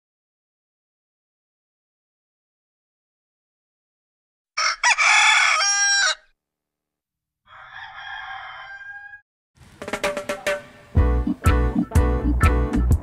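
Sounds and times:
rooster crowing: 4.6 - 6.3, 7.5 - 9.2
music with plucked guitar: 9.9 - 13.0.

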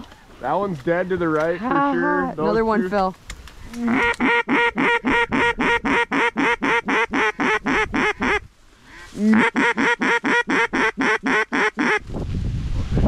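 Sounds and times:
duck quacks: 3.8 - 12.0
wind rumbling on microphone: 11.9 - 13.0.

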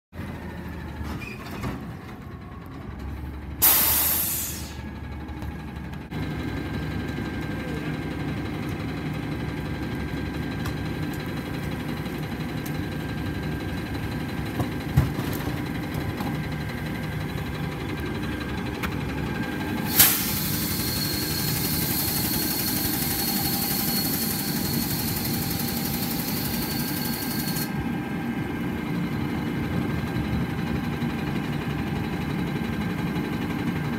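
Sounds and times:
garbage truck engine running: 0.2 - 33.9
short sharp air hiss: 3.6 - 4.8, 19.9 - 21.7.

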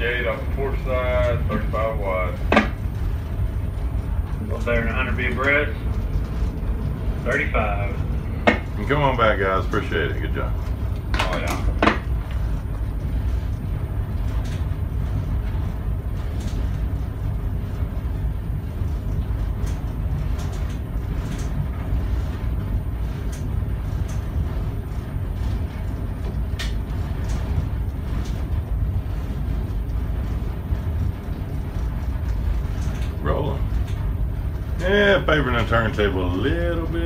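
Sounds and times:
diesel engines rumbling: 0.0 - 13.0.

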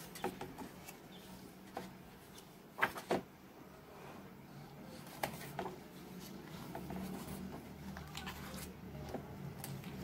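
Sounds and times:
book pages turning: 0.0 - 3.3, 5.0 - 10.0.

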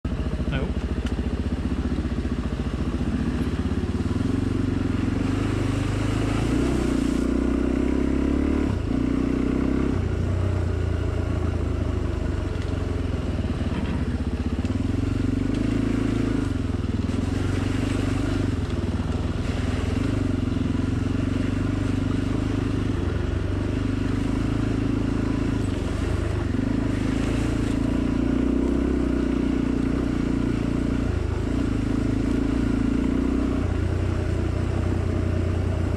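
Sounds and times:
off-road motorcycle engine revving: 0.0 - 35.9.

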